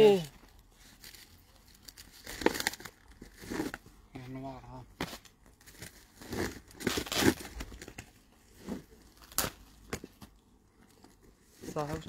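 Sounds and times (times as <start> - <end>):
sharp crackle: 0.0 - 3.8, 9.1 - 9.7
plastic and cardboard rustling: 0.2 - 12.0.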